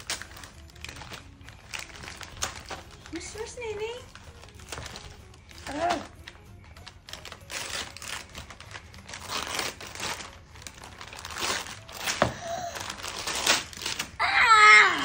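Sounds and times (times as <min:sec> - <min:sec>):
wrapping paper tearing and crumpling: 0:00.0 - 0:15.0.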